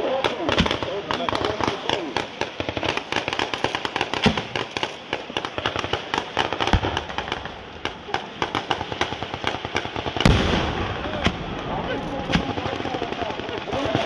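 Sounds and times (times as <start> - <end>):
deep bang: 10.2 - 12.5.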